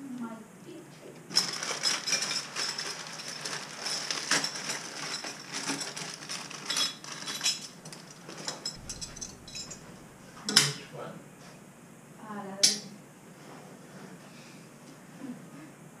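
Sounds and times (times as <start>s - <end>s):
metal parts clinking and rattling: 1.3s - 10.7s.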